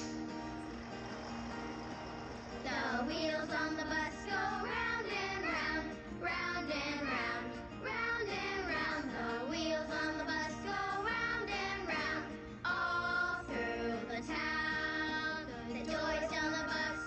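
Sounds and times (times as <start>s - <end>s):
music backing: 0.0s - 17.0s
person singing: 2.6s - 4.8s.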